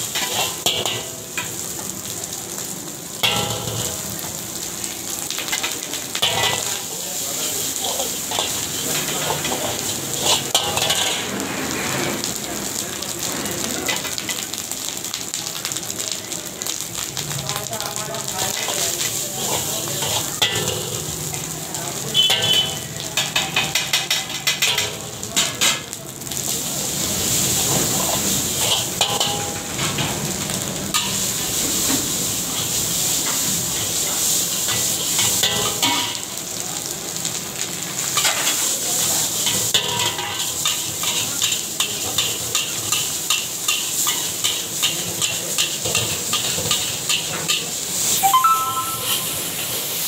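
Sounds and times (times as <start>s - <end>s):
metal spatula scraping a wok: 0.0s - 1.1s, 5.5s - 6.8s, 7.7s - 12.3s, 19.0s - 21.0s, 22.2s - 24.8s, 27.7s - 29.6s
rice sizzling in a wok: 0.0s - 50.0s.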